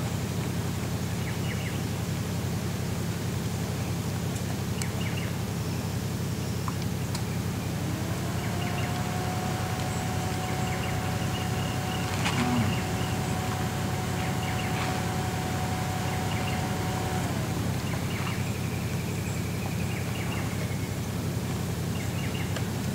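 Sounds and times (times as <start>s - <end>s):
car engine running low: 0.0s - 22.9s
faint steady whine: 5.6s - 22.9s
birds chirping: 6.6s - 21.0s.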